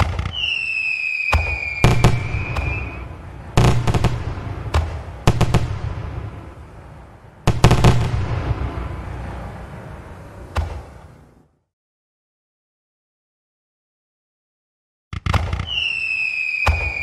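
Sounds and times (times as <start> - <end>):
firework whistle: 0.0 - 4.5, 15.5 - 17.0
firework bangs with crackle: 0.0 - 6.7, 7.4 - 9.2, 10.5 - 11.2, 15.2 - 17.0.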